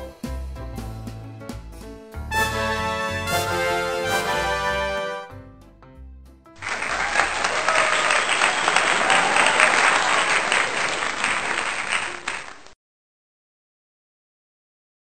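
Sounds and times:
crowd clapping: 0:06.6 - 0:12.8.

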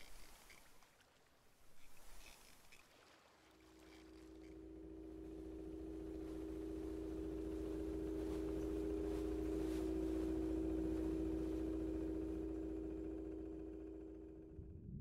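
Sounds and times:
humming drone of pure tones: 0:01.6 - 0:15.0
low rumble: 0:04.2 - 0:15.0.

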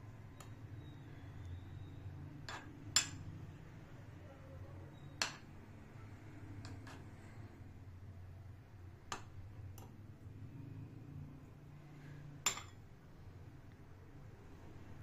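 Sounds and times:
low steady hum: 0:00.0 - 0:15.0
metal spoon clinking on glass: 0:02.4 - 0:03.3, 0:12.4 - 0:12.8.

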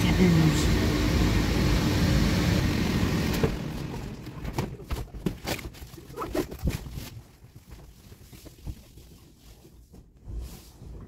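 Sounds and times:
electric blower running: 0:00.0 - 0:04.4.

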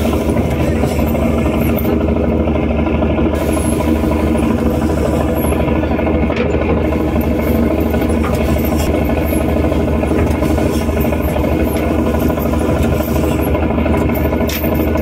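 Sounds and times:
boat engine running: 0:00.0 - 0:15.0.

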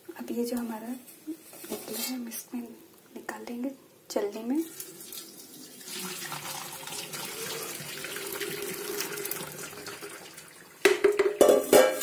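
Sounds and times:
liquid splashing pour: 0:04.6 - 0:10.8.

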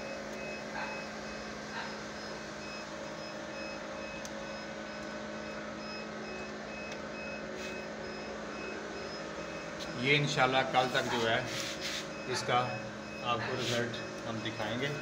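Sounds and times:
incubator fan hum: 0:00.0 - 0:15.0
faint high electronic beep: 0:12.1 - 0:15.0.

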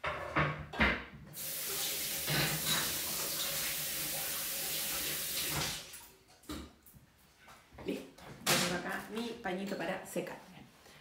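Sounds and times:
tap water running into sink: 0:01.3 - 0:06.1.

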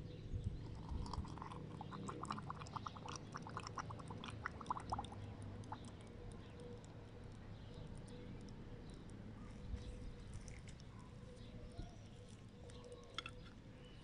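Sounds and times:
small bubbling pops: 0:00.4 - 0:09.2
oil pouring into glass jar: 0:00.6 - 0:05.9.

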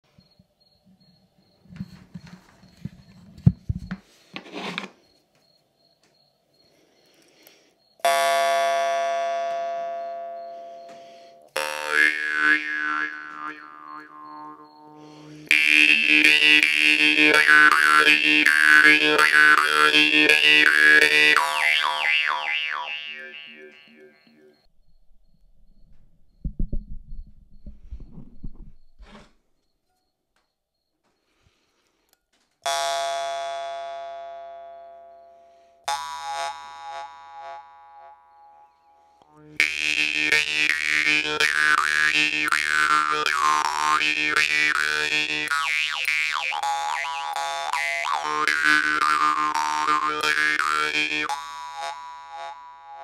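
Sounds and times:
jaw harp buzzing drone: 0:08.1 - 0:24.7, 0:35.9 - 0:53.0.

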